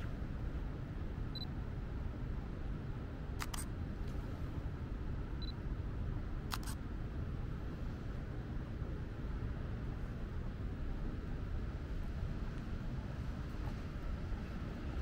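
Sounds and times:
low city rumble: 0:00.0 - 0:15.0
sharp clicks: 0:03.4 - 0:03.7, 0:06.5 - 0:06.8.

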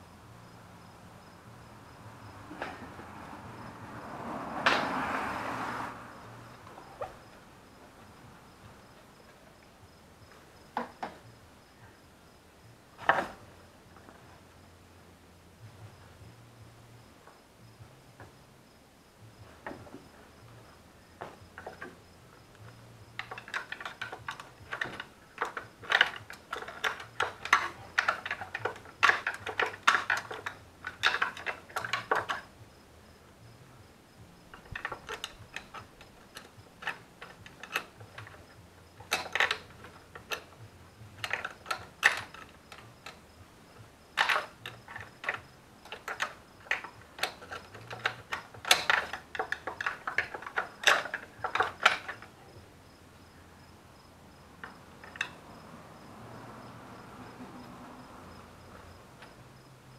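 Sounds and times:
socket ratchet clicking: 0:44.2 - 0:52.3.

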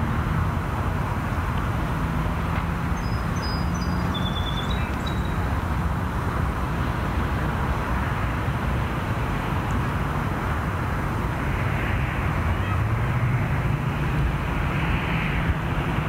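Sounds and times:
distant road traffic rumble: 0:00.0 - 0:16.0
faint high bird chirps: 0:03.0 - 0:05.4.

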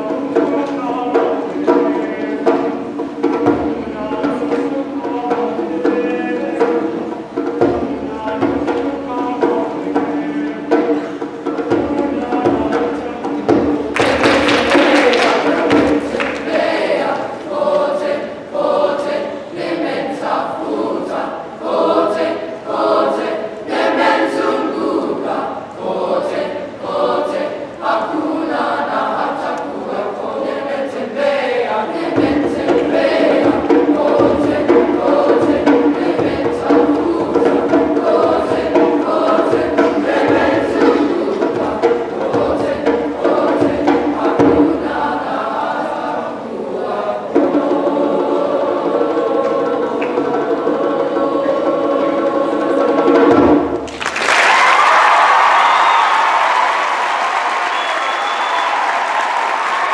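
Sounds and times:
boys' chorus singing in parts: 0:00.0 - 0:53.8
burst of percussion: 0:10.7 - 0:16.7.

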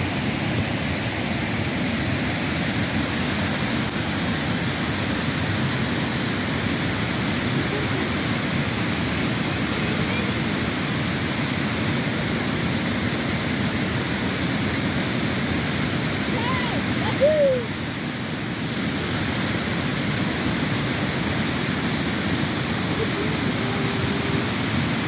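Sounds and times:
flood water rushing: 0:00.0 - 0:25.0.

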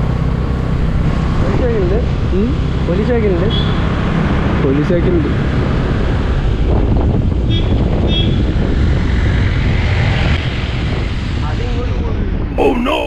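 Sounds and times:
wind buffeting microphone: 0:05.4 - 0:12.6.

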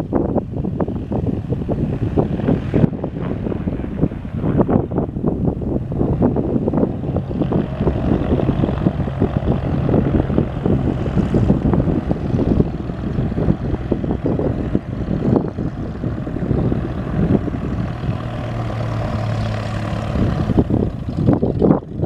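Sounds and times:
plane engine idling: 0:00.0 - 0:22.0
wind buffeting microphone: 0:00.0 - 0:22.0.

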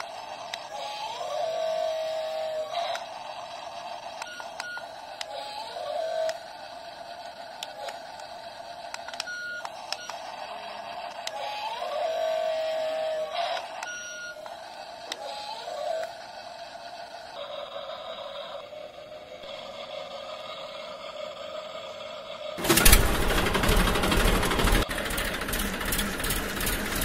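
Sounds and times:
small electric motors whining: 0:00.0 - 0:27.0
sharp plastic clicks: 0:07.2 - 0:10.2.

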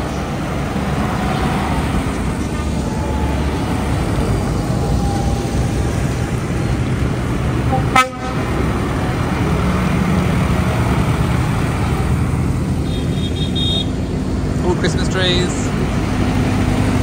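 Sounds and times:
tractor diesel engines rumbling: 0:00.0 - 0:17.0
short horn toot: 0:07.7 - 0:08.4.

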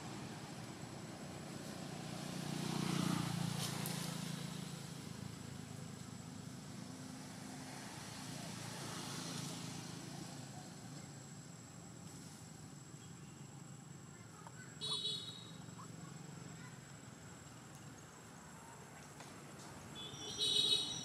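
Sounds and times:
vehicle engine passing: 0:00.0 - 0:12.7.

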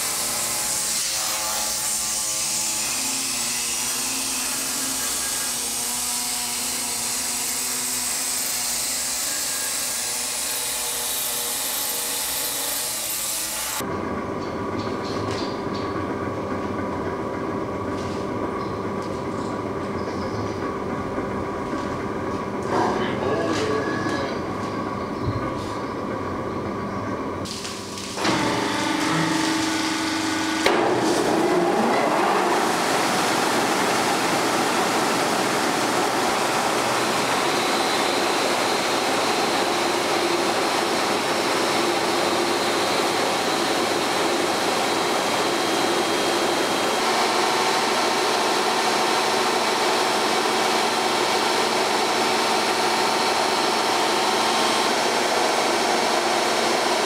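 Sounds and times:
saw grinding stone: 0:00.0 - 0:13.8
circular saw humming: 0:00.0 - 0:16.6, 0:28.1 - 0:57.0.

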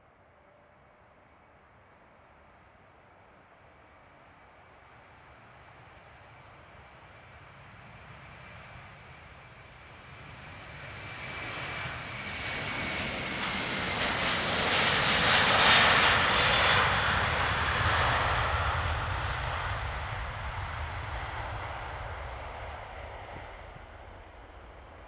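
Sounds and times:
faint high whine: 0:00.0 - 0:14.1
jet engines at takeoff thrust: 0:00.0 - 0:25.0.

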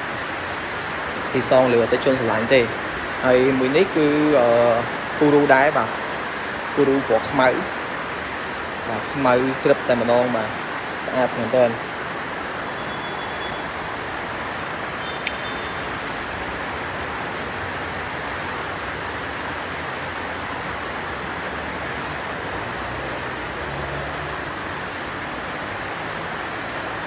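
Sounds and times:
room noise hiss: 0:00.0 - 0:27.0
short click: 0:15.2 - 0:15.5.

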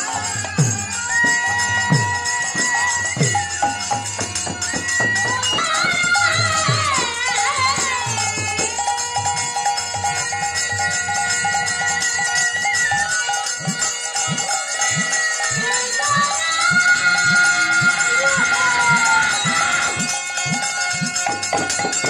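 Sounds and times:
droning harmonium: 0:00.0 - 0:22.0
hand cymbals jangling: 0:00.0 - 0:22.0
woman singing: 0:01.2 - 0:09.0, 0:15.5 - 0:20.3.

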